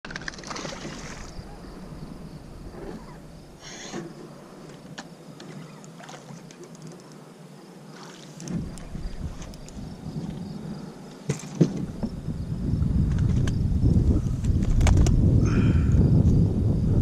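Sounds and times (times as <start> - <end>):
fish splashing in water: 0.0 - 1.7.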